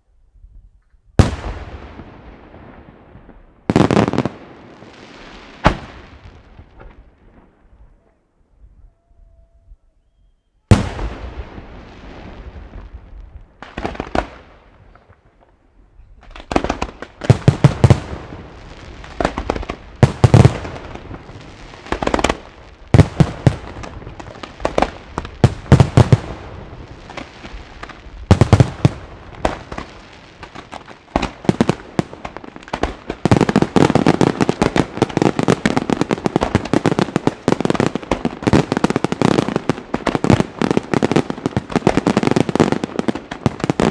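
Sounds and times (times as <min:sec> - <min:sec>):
firework bang: 0:05.6 - 0:07.0.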